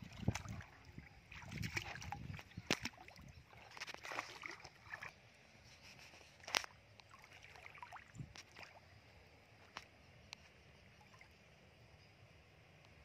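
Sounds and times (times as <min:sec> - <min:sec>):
sharp splashes: 0:00.0 - 0:05.2, 0:06.5 - 0:08.8
bare feet sloshing through muddy water: 0:00.0 - 0:09.0.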